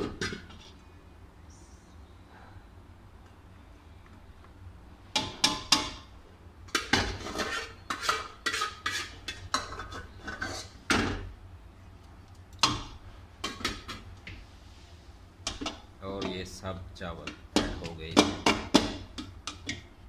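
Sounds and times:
metal spoon clanking on pots: 0:05.2 - 0:06.0, 0:06.7 - 0:11.3, 0:12.6 - 0:14.0, 0:15.5 - 0:16.5, 0:17.2 - 0:19.9
spoon scraping pot: 0:06.7 - 0:10.8.

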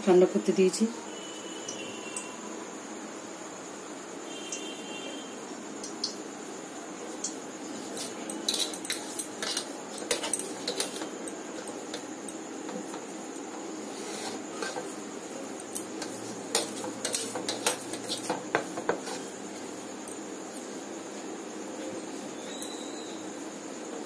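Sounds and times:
clicks and taps on metal plate: 0:15.7 - 0:19.1.

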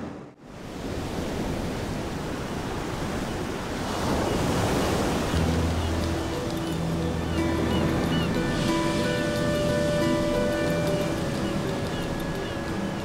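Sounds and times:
ocean waves breaking: 0:00.0 - 0:13.0
low sustained music notes: 0:05.3 - 0:13.0.

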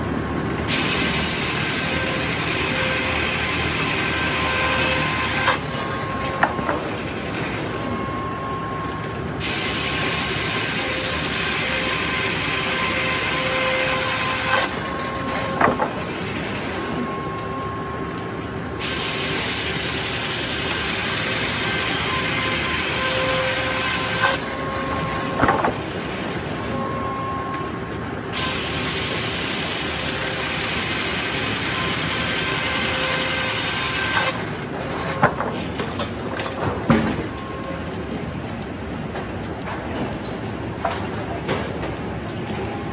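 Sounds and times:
circular saw cutting log: 0:00.8 - 0:07.1, 0:09.7 - 0:16.2, 0:18.8 - 0:25.9, 0:28.4 - 0:34.4.

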